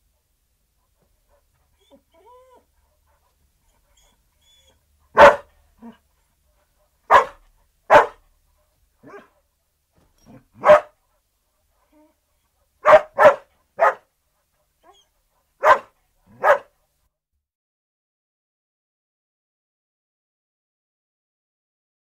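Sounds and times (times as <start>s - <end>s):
dog barking: 5.1s - 6.0s, 7.1s - 8.2s, 9.0s - 9.4s, 10.3s - 11.0s, 12.8s - 14.1s, 15.6s - 16.8s.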